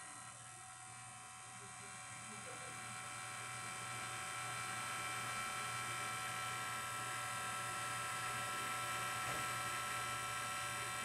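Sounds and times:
air conditioner humming with whine: 0:00.0 - 0:11.0.

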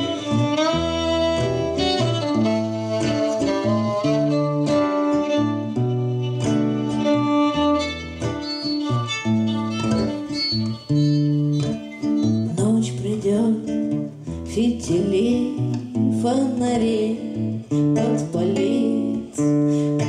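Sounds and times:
violin gliding melody: 0:00.0 - 0:12.7
acoustic guitar chords: 0:00.0 - 0:20.0.

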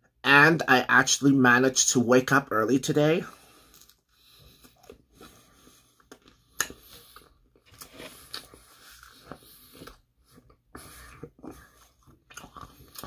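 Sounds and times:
person chewing food: 0:03.4 - 0:13.0.

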